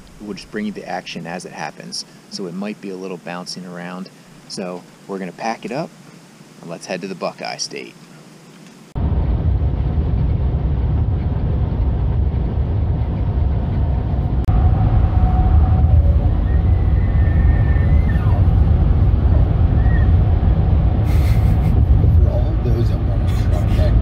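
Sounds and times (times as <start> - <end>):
car road and engine rumble: 8.2 - 24.0.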